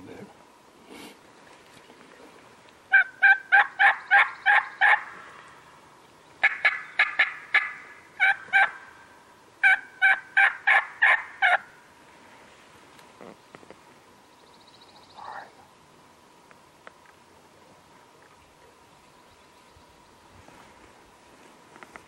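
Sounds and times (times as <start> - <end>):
turkey yelping: 2.9 - 5.1, 6.4 - 9.0, 9.6 - 11.7.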